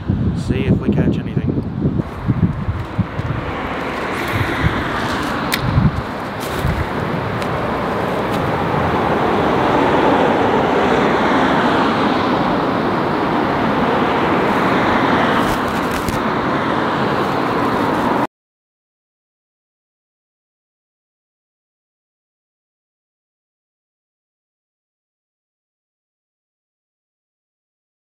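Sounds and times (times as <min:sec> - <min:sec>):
road traffic rushing over bridge: 0:01.5 - 0:18.3.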